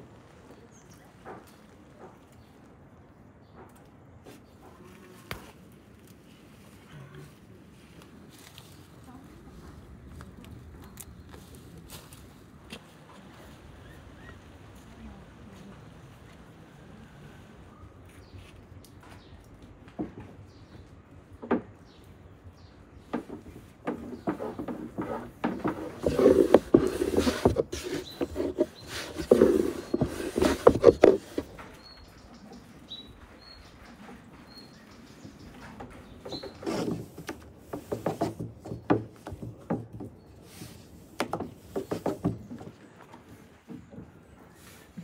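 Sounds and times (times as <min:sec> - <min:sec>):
rolling pin on wooden board: 0:23.1 - 0:31.5, 0:36.3 - 0:40.1, 0:41.2 - 0:42.7.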